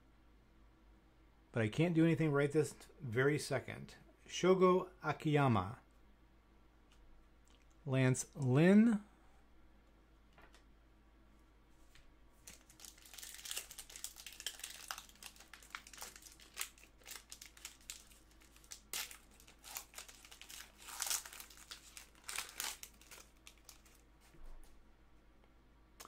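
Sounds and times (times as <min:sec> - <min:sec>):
foil wrapper tearing and crinkling: 0:12.4 - 0:24.0.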